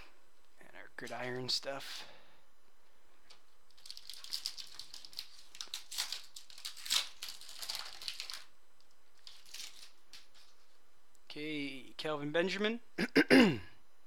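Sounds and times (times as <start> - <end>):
foil wrapper crinkling: 3.3 - 10.8.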